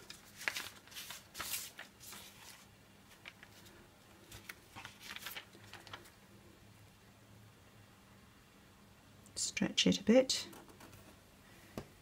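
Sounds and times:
paper tape rustling: 0.0 - 6.2.

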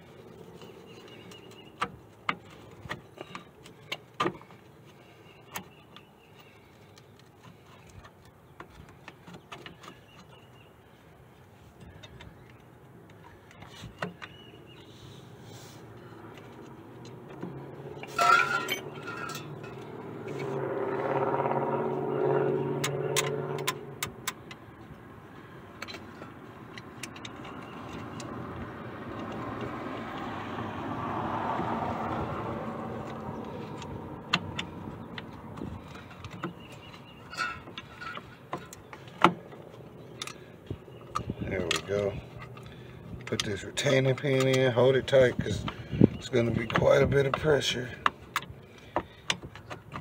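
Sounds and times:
vehicle engine passing: 14.8 - 38.4.

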